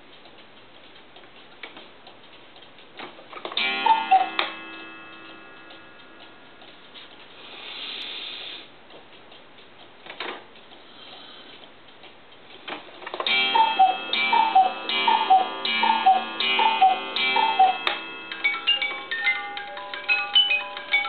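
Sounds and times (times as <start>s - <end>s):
clock ticking: 0.0s - 7.7s, 8.6s - 21.0s
cuckoo call: 3.8s - 4.5s, 13.3s - 19.0s
gong strikes ringing: 13.3s - 19.1s.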